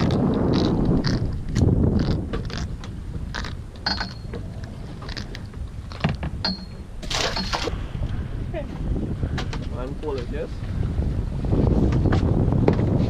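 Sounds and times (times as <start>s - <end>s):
fishing tackle clinking on metal: 3.8s - 4.4s, 6.4s - 7.6s.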